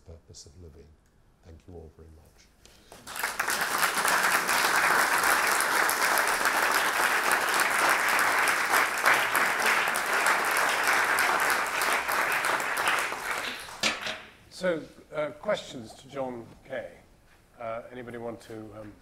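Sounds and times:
audience applauding: 2.9s - 14.1s.

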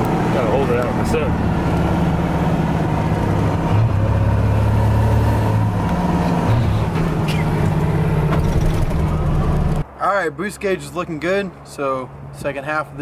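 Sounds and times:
diesel engine drone from inside cab: 0.0s - 9.8s.

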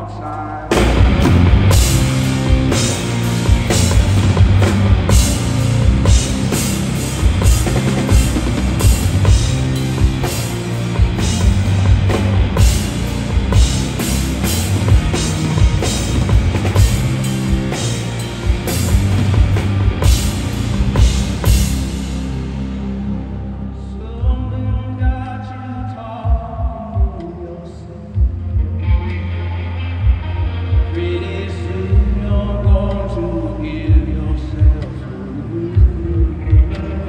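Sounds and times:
drum kit beat: 0.7s - 22.8s
live rock band playing: 0.7s - 24.5s, 28.2s - 37.0s.

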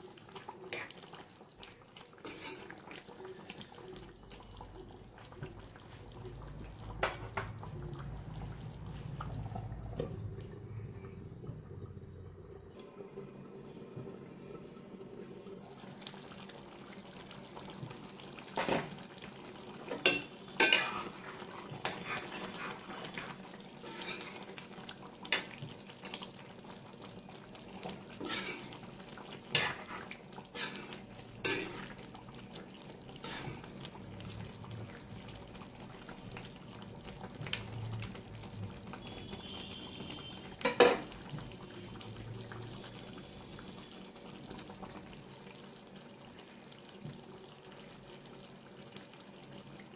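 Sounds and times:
curry simmering: 0.0s - 49.9s
ladle scraping and clinking pan: 2.2s - 2.8s, 19.9s - 21.2s, 28.2s - 28.7s, 30.6s - 31.9s.

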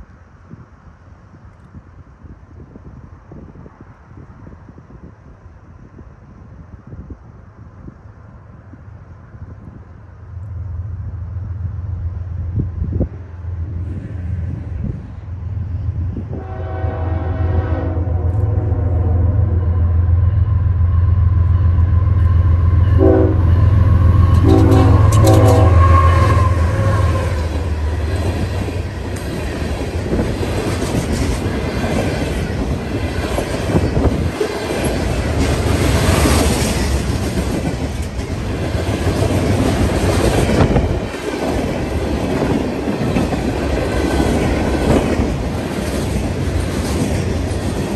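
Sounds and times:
diesel locomotives rumbling: 0.0s - 47.9s
train horn blasts: 16.3s - 27.9s
train wheels clattering on rails: 22.1s - 47.9s.

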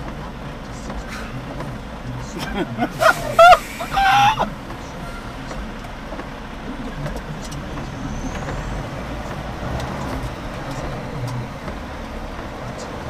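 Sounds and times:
diesel engine idling: 0.0s - 13.0s
light ticks: 9.2s - 13.0s.

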